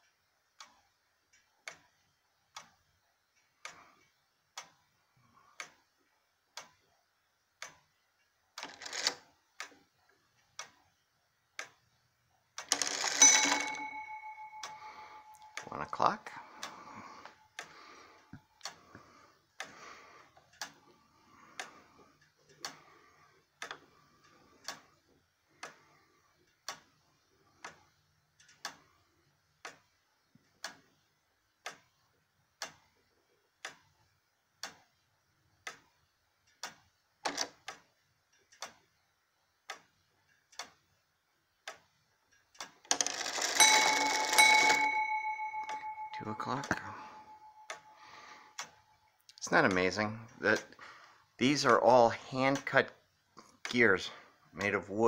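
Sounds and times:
clock ticking: 0.0 - 55.0
clock bell striking: 12.7 - 16.4, 43.2 - 48.0.

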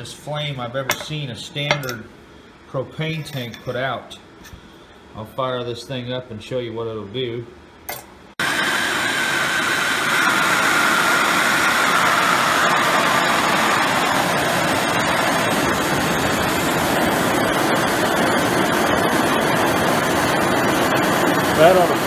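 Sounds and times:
propane torch flame hissing: 8.4 - 22.0.

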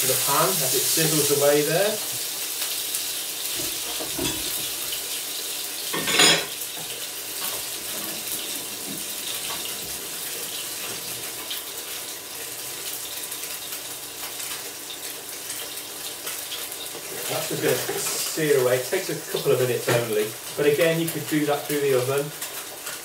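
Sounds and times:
fish sizzling in frying pan: 0.0 - 23.0
tap running into sink: 3.6 - 4.7.

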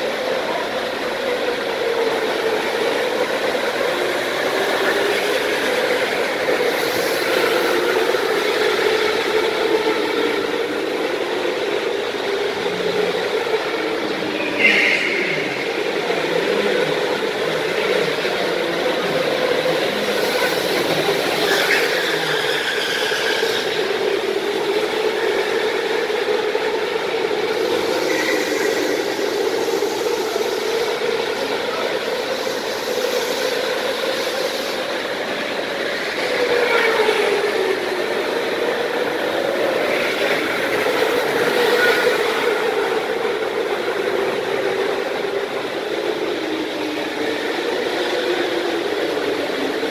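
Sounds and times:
go-kart motors droning: 0.0 - 49.9.

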